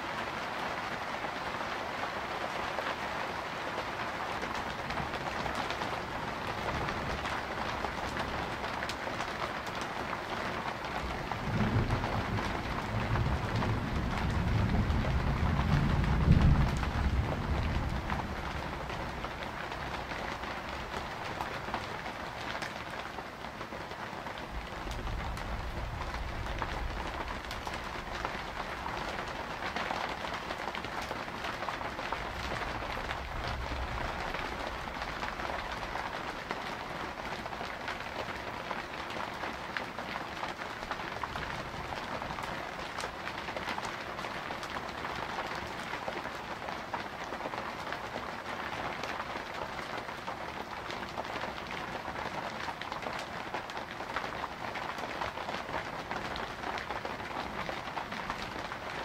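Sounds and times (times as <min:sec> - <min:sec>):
steady rain: 0:00.0 - 0:59.0
low thunder rumbles: 0:11.2 - 0:20.1, 0:24.5 - 0:29.2.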